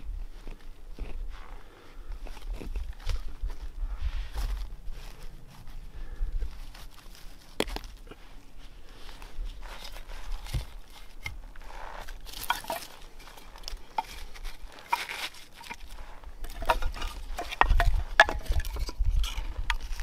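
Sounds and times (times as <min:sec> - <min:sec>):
low rumble: 0:02.8 - 0:09.6
dry leaves rustling: 0:03.0 - 0:20.0
firewood knocking together: 0:12.3 - 0:15.8, 0:16.4 - 0:20.0.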